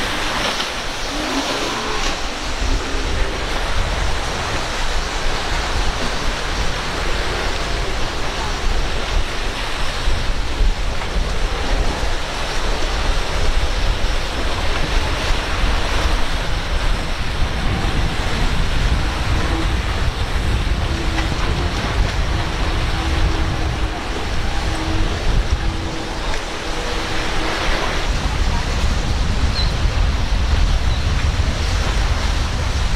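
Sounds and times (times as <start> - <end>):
outboard motor drone: 0.0 - 32.9
surf: 0.0 - 32.9
wind buffeting microphone: 0.0 - 32.9
low rumble: 14.3 - 32.9.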